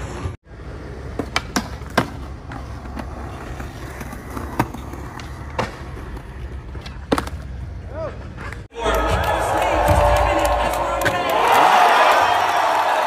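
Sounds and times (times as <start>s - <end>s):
skateboard wheels rolling on concrete: 0.0s - 8.7s.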